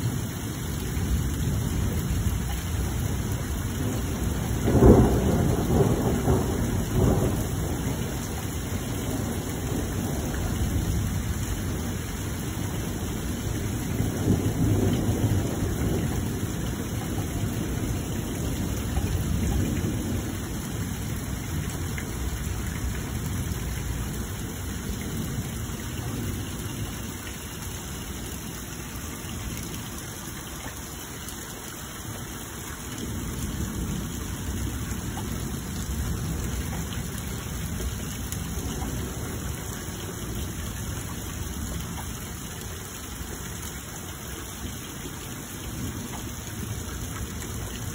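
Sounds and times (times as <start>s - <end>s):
rain falling: 0.0s - 47.9s
low thunder rumbling: 0.8s - 30.0s, 32.9s - 43.4s.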